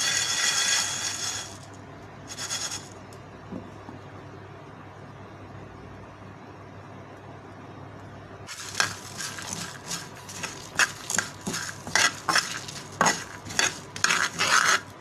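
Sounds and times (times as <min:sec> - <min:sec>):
seeds rattling in a pan: 0:00.0 - 0:03.0, 0:08.5 - 0:15.0
spoon scraping and clinking on pan: 0:08.5 - 0:15.0.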